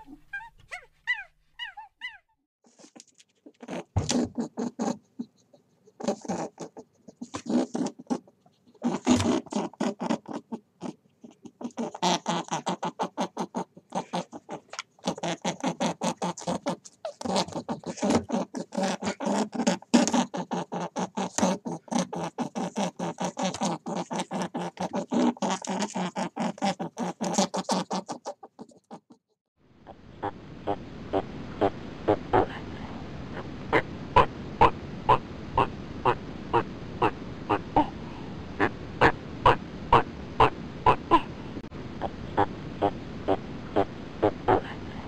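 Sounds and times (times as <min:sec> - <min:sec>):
rabbit grooming fur: 0:02.6 - 0:29.1.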